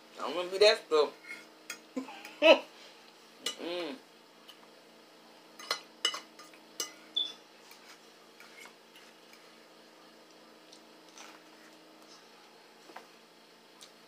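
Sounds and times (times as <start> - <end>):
cutlery clinking on plates: 5.6 - 7.0.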